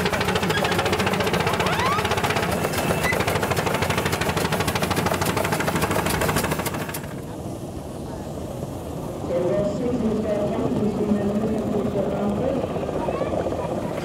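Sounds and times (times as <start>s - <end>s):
engine knocking: 0.0s - 7.3s.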